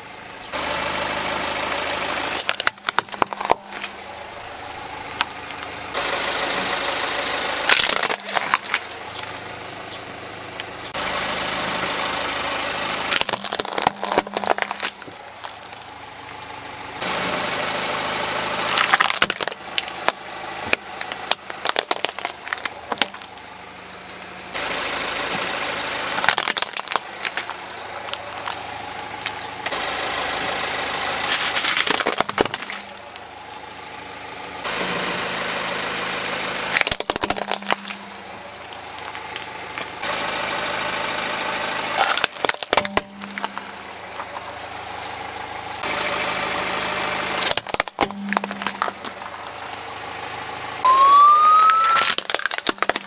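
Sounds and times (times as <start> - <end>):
car engine running: 0.0 - 53.0
plastic toys cracking under tyre: 2.4 - 4.3, 7.7 - 9.0, 13.1 - 15.9, 18.7 - 23.4, 26.2 - 28.6, 31.2 - 33.2, 36.7 - 38.2, 42.0 - 44.4, 47.4 - 49.8, 51.6 - 53.0.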